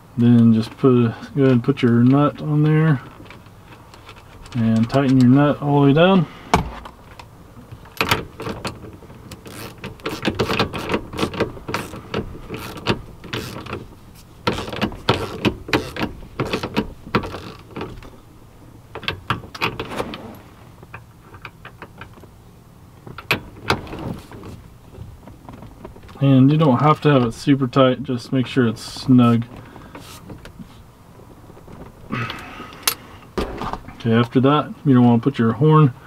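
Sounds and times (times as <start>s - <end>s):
hand ratchet clicking: 8.0s - 13.8s, 14.4s - 17.9s.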